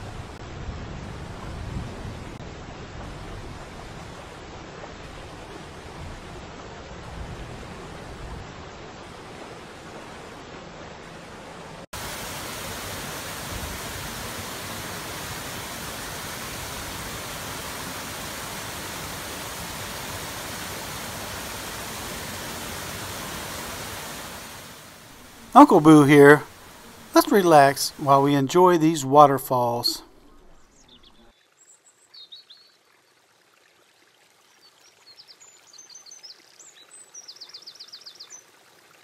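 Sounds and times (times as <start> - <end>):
waterfall rushing: 11.9 - 30.0.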